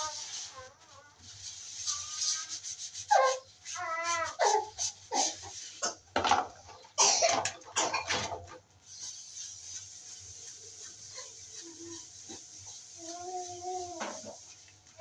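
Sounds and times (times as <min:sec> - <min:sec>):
sponge scrubbing dishes: 0:00.0 - 0:15.0
plastic plates clattering: 0:06.1 - 0:08.6.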